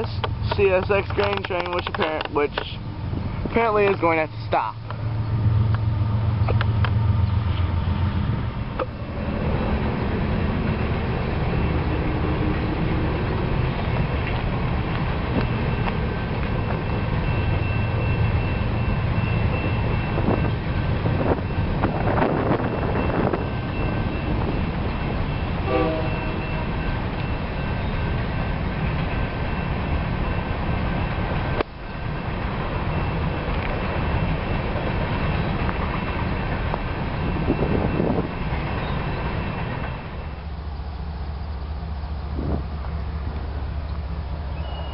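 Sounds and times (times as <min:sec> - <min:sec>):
diesel locomotives rumbling: 0:00.0 - 0:44.9
short tone: 0:16.6 - 0:20.6, 0:25.6 - 0:28.1, 0:44.5 - 0:44.9
wind on microphone: 0:20.1 - 0:24.8, 0:42.3 - 0:42.8.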